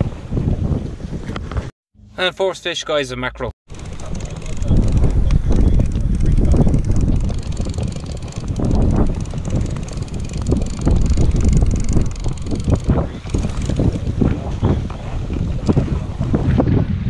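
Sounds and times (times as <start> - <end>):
wind buffeting microphone: 0.0 - 1.7, 3.7 - 17.0
choppy water washing around boat: 3.8 - 17.0.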